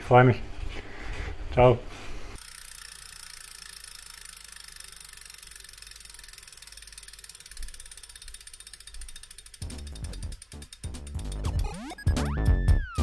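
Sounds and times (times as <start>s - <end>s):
bicycle freehub ticking: 2.4s - 12.3s.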